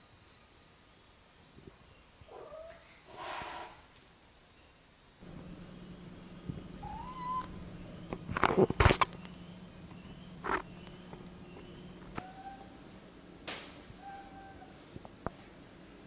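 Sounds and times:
cat meowing: 6.7s - 7.6s, 14.0s - 14.8s
brushing and bumping on microphone: 8.1s - 9.2s.

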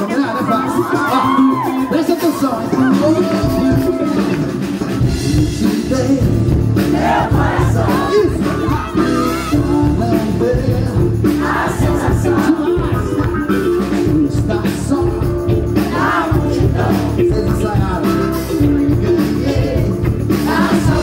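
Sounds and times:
drums: 0.0s - 21.0s
electric guitar: 0.0s - 21.0s
man singing into microphone: 5.0s - 6.8s, 7.8s - 21.0s.

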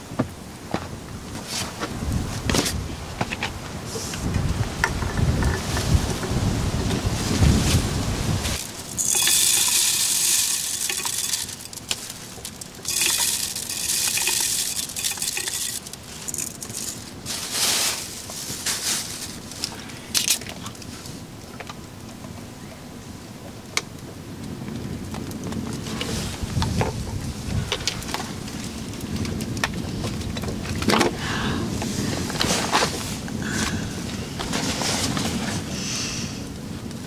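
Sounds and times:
small clicks and ticks: 8.6s - 17.1s
rice pouring in a plastic bag: 8.6s - 19.6s.

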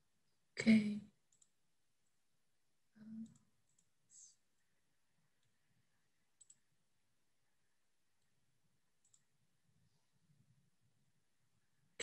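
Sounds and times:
computer mouse clicks: 1.3s - 1.6s, 3.2s - 4.0s, 6.3s - 6.7s, 9.0s - 9.4s.

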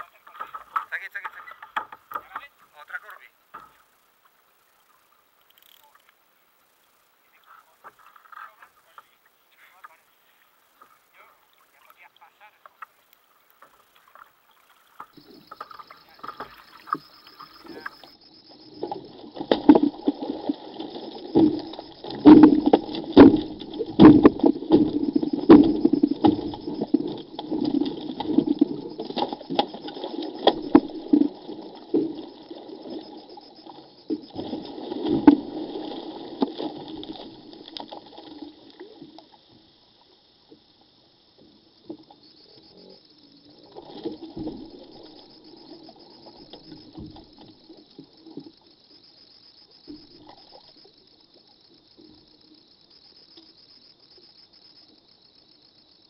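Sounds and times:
fish splashing and slapping water: 0.0s - 39.5s, 43.5s - 48.6s.

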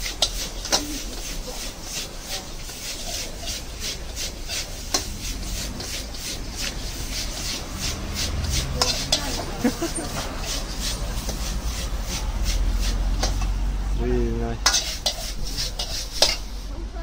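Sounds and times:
spatula clanking against wok: 0.0s - 13.6s, 14.6s - 16.6s
metal spatula scraping a wok: 0.0s - 13.8s, 14.6s - 16.8s.

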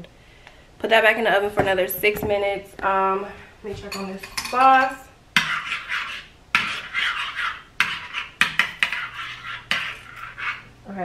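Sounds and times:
spoon scraping and clinking dish: 3.9s - 10.7s.

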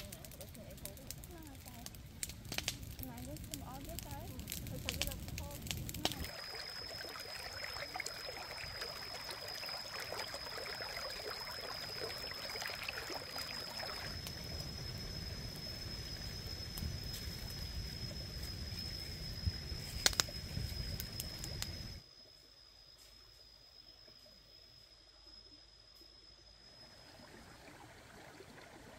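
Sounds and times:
stream trickling: 0.0s - 18.9s, 26.5s - 28.9s
campfire crackling: 0.0s - 22.0s
high steady whine: 13.4s - 25.0s.

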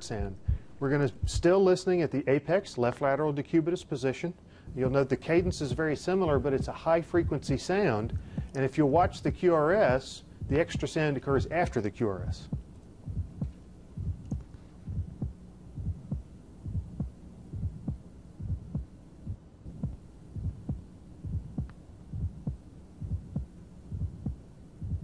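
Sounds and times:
heartbeat through stethoscope: 0.1s - 1.5s, 4.7s - 25.0s
short high-pitched heart click: 12.5s - 25.0s.

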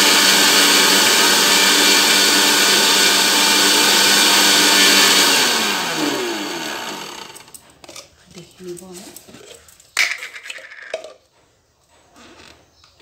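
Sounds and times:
mixer grinder grinding seeds: 0.0s - 8.0s.

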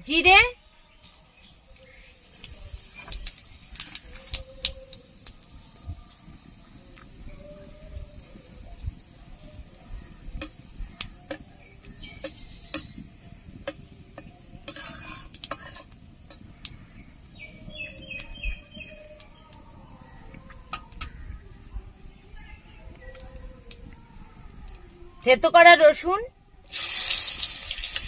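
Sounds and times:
spices frying in oil: 1.0s - 20.0s, 26.7s - 28.0s
bird chirping: 9.5s - 14.3s, 16.2s - 25.2s
metal spatula scraping pot: 14.6s - 16.4s.

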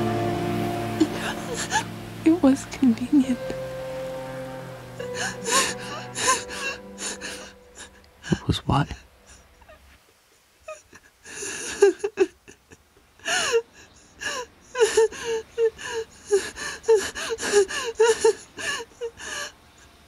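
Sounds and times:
person sobbing: 1.0s - 1.9s, 5.0s - 8.4s, 10.7s - 19.5s.

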